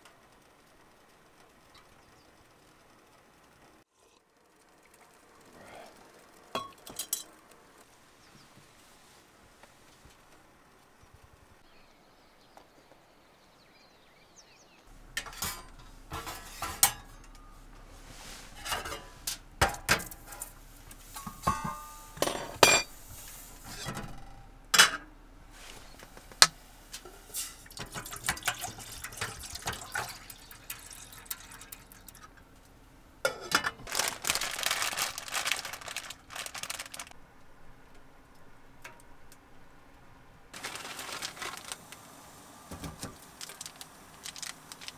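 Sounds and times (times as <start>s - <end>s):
metal cookware clinking: 6.6s - 7.3s, 15.1s - 17.4s, 21.1s - 22.9s, 24.8s - 25.1s, 27.0s - 32.4s, 33.3s - 33.9s
dense rustling: 14.9s - 24.4s, 25.4s - 28.2s, 33.2s - 37.2s, 40.5s - 44.9s
water pouring into pot: 27.3s - 32.4s.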